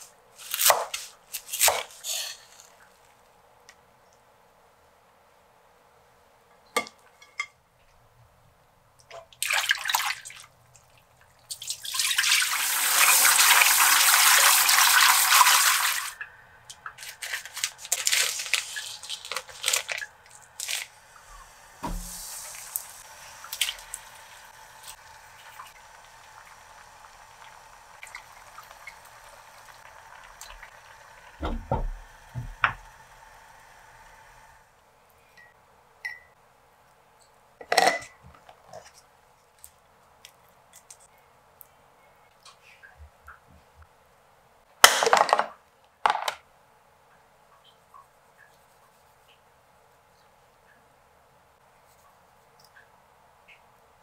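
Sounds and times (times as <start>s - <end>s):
plastic packet crinkling: 17.0s - 21.0s
tap running into sink: 31.4s - 32.9s.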